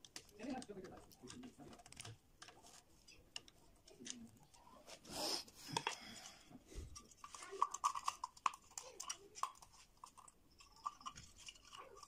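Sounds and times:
faint clicks of pliers and metal parts: 0.0s - 4.6s.

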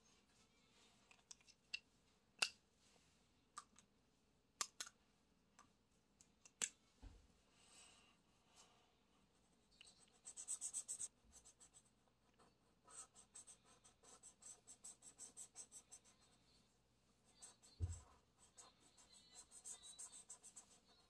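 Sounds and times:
marker scribbling on paper: 9.8s - 16.4s, 17.2s - 21.0s.

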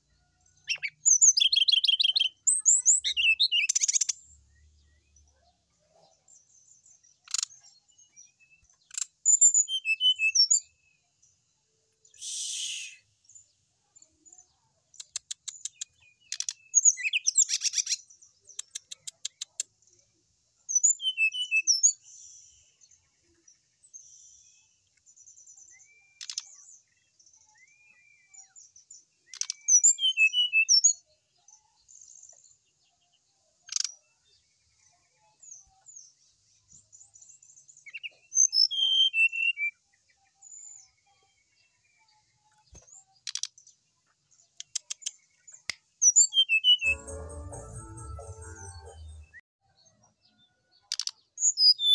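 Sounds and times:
bird singing trills and whistles: 0.7s - 4.2s, 7.2s - 10.8s, 12.1s - 13.2s, 20.7s - 22.0s, 29.2s - 31.0s, 37.8s - 39.8s, 44.6s - 46.9s, 50.9s - 51.9s.

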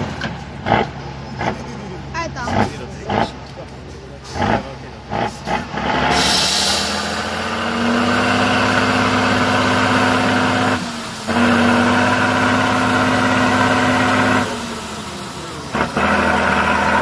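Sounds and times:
truck diesel engine revving hard: 0.0s - 17.0s
short hiss: 6.1s - 7.1s.

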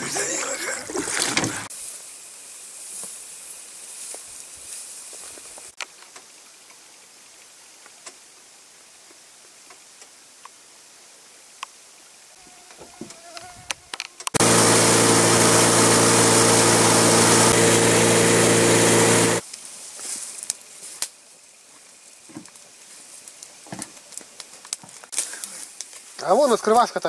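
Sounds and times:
wind: 0.0s - 27.0s
motorboat engine drone: 14.4s - 19.4s
rushing water spray: 14.4s - 19.4s.

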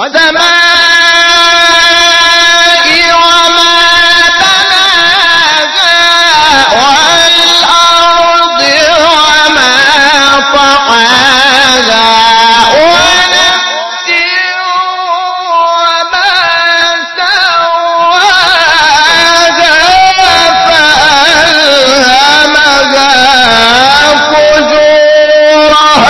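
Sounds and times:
man chanting through a microphone: 0.0s - 26.0s.

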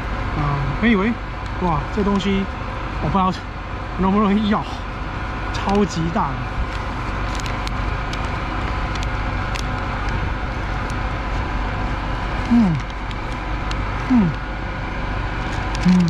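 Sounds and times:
low mechanical hum: 0.0s - 16.0s
paper wrapper crinkling: 6.7s - 9.8s, 15.6s - 16.0s
man humming mmm: 12.4s - 12.9s, 14.0s - 14.4s.

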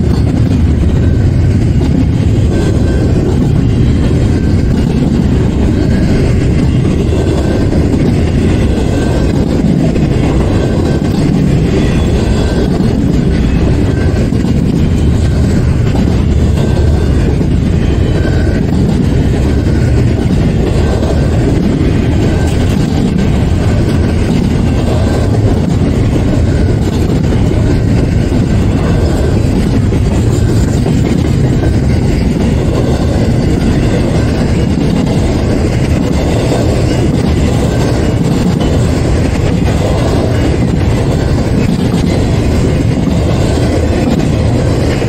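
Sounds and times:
freight train wheels rumbling: 0.0s - 45.0s.

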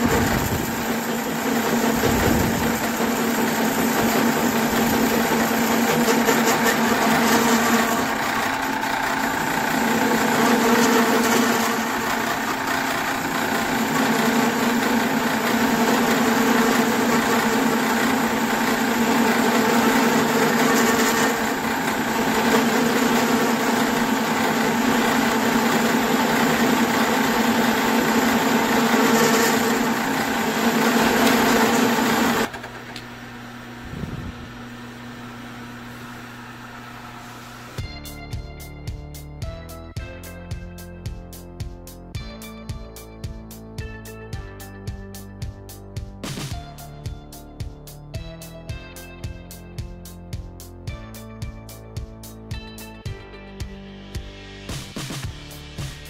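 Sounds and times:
metal lathe hum and gear whine: 3.4s - 37.8s.

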